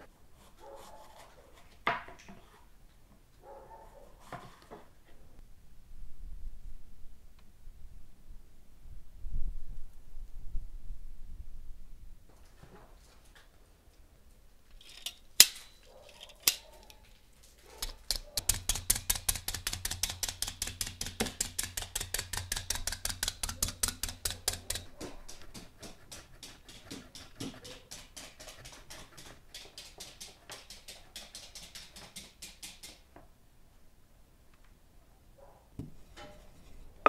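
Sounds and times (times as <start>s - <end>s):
meat tenderizer clicking and tapping: 17.8s - 33.0s.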